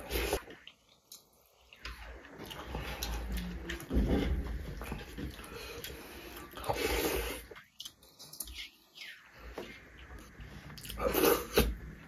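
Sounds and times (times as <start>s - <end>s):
chewing and mouth clicks: 4.8s - 11.7s.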